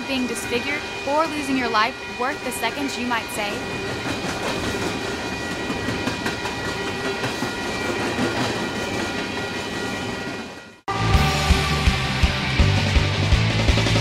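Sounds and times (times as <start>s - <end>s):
high steady tones: 0.0s - 10.3s
freight train cars rumbling: 0.0s - 14.0s.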